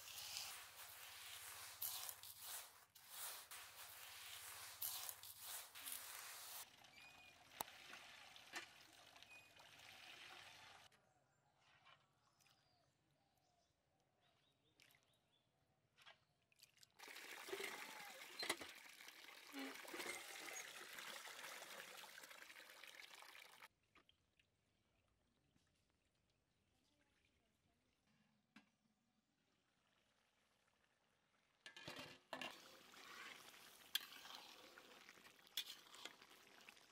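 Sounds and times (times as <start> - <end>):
water pouring and splashing: 0.0 - 10.9, 16.6 - 23.7, 32.4 - 36.9.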